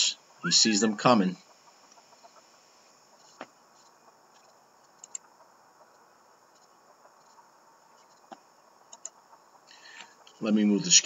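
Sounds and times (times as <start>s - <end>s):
insects chirring: 0.0s - 11.0s
sharp clicks: 4.4s - 5.3s, 8.1s - 9.2s.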